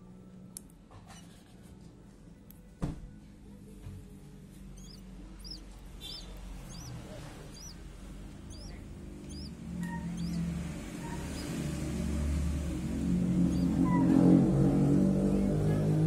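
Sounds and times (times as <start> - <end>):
eagle chick peeping: 4.7 - 14.2.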